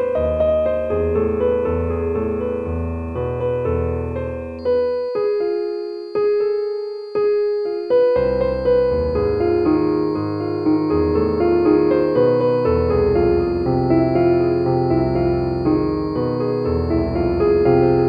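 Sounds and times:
slow piano music: 0:00.0 - 0:18.0
faint high steady tone: 0:04.5 - 0:18.0.

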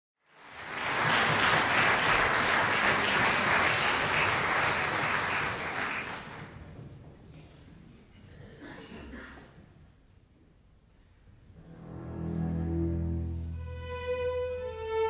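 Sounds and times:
audience applauding: 0:00.2 - 0:06.6.

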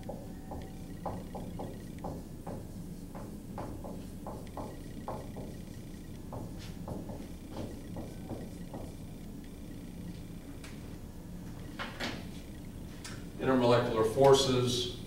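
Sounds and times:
marker writing on whiteboard: 0:00.0 - 0:09.2
steady low hum: 0:00.0 - 0:15.0.

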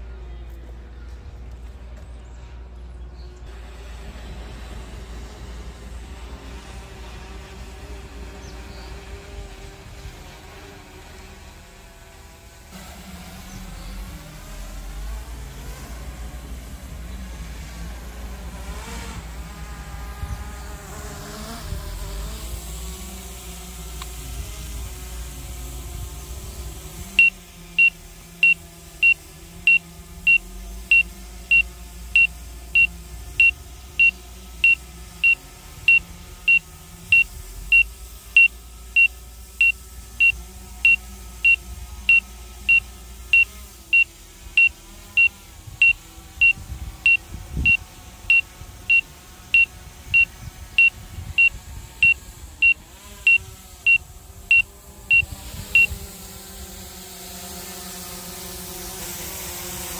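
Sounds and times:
high electronic warning beeps: 0:27.2 - 0:49.0, 0:49.6 - 0:56.0.

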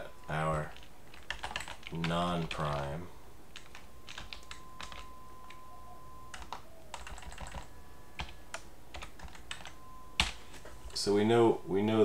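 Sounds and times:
keyboard typing clicks: 0:00.7 - 0:02.9, 0:03.6 - 0:05.6, 0:06.3 - 0:10.4.

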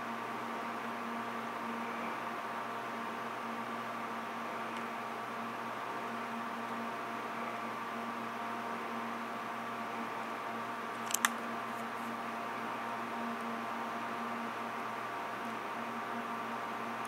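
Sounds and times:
electrical hum and hiss: 0:00.0 - 0:17.0
sharp clicks: 0:11.0 - 0:11.4.

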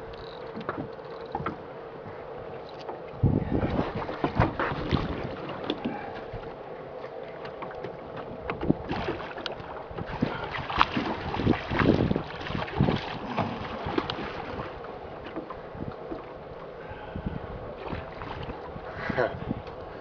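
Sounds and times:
wind buffeting microphone: 0:03.1 - 0:06.6, 0:08.2 - 0:20.0
water splashing: 0:03.7 - 0:06.1, 0:07.2 - 0:15.6, 0:17.8 - 0:18.8.

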